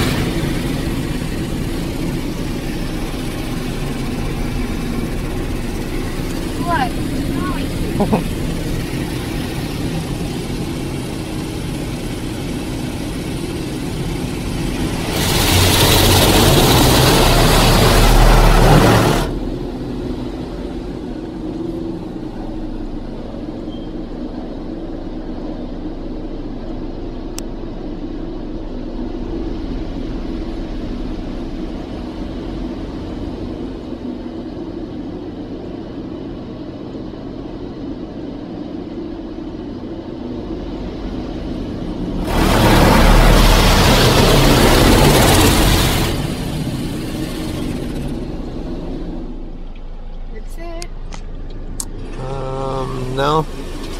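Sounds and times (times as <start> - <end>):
car wash machinery hum: 0.0 - 53.9
hissing water spray on car body: 11.9 - 19.5, 42.2 - 47.8.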